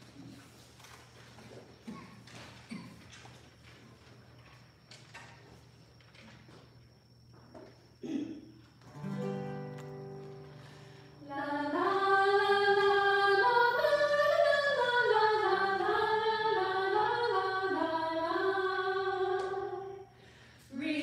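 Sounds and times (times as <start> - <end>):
acoustic guitar strummed: 8.9 - 11.2
people singing a hymn: 10.6 - 20.2.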